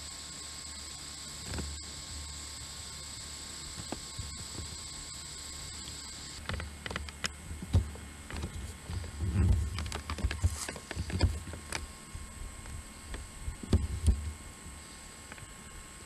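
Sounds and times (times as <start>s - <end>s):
thin steady high whine: 0.0s - 16.0s
camera handling knocks and rustling: 6.4s - 11.8s.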